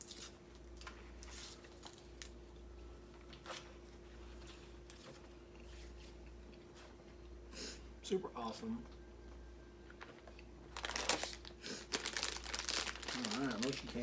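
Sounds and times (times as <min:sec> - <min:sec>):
steady low hum: 0:00.0 - 0:14.0
wrappers and paper rustling: 0:10.1 - 0:14.0.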